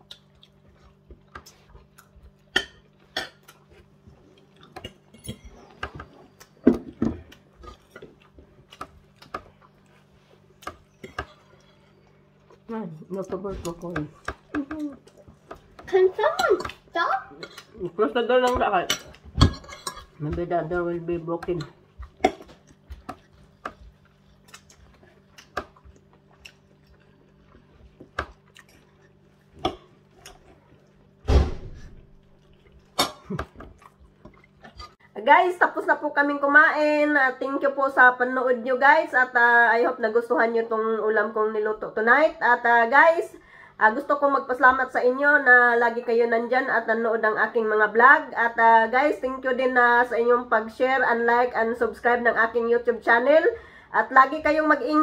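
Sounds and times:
person chewing: 0.0 - 6.6, 7.2 - 15.9, 21.6 - 31.2, 32.0 - 35.0.

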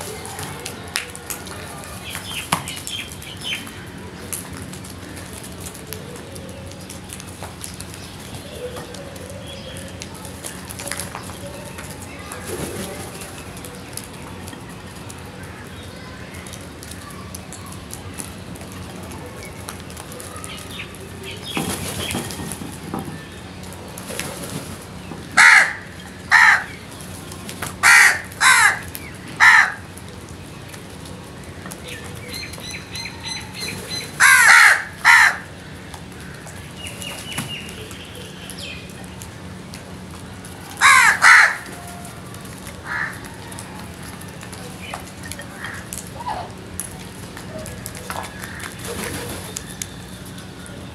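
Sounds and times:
crows cawing: 25.4 - 26.8, 27.8 - 29.9, 34.2 - 36.5, 40.8 - 41.9, 42.8 - 43.3, 48.2 - 48.8.

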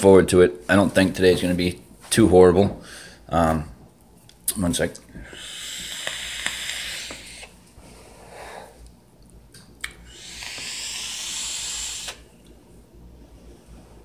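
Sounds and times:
soft breath: 5.1 - 8.8
airy vaping hiss: 5.2 - 7.6, 10.0 - 12.3.

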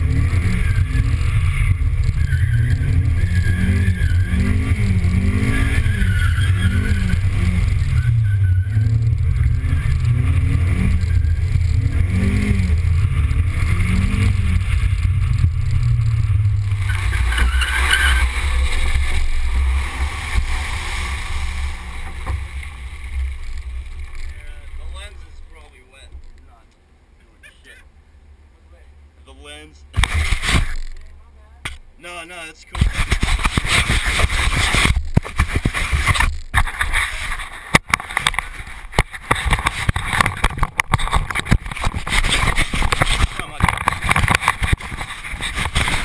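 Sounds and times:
wind rumbling on microphone: 0.0 - 25.5, 32.8 - 46.0
tyres spraying through water: 13.8 - 24.4
camera handling knocks and rubbing: 32.8 - 46.0.

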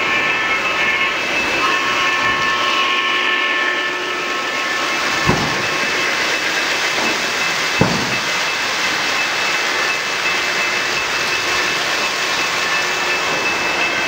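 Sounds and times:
model train wheels and motor hissing: 0.0 - 14.0
steady tones: 0.0 - 14.0
knock: 5.3 - 5.8, 7.8 - 8.4.

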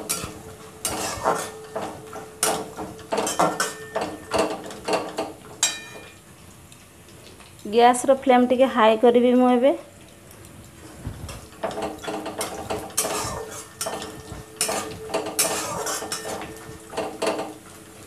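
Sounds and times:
pan ringing faintly: 0.0 - 5.0
metal spatula scraping pan: 0.0 - 5.1, 11.6 - 17.4.

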